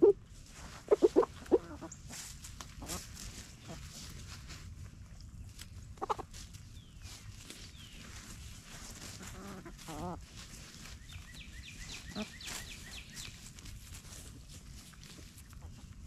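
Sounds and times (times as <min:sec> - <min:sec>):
scratching in leaf litter: 0:00.3 - 0:16.0
hen calling: 0:00.9 - 0:02.1, 0:06.0 - 0:06.3, 0:11.1 - 0:13.3.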